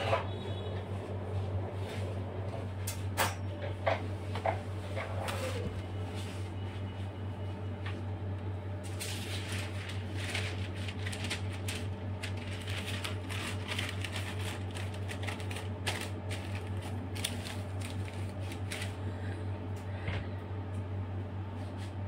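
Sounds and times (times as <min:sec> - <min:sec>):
low electrical hum: 0:00.0 - 0:22.0
plastic piping bag crinkling: 0:08.9 - 0:19.1.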